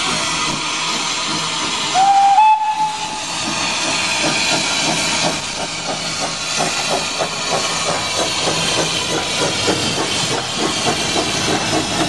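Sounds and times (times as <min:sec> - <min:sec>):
steam hiss: 0:00.0 - 0:12.0
steam locomotive chuffing: 0:00.0 - 0:12.0
steam locomotive whistle: 0:01.9 - 0:03.4.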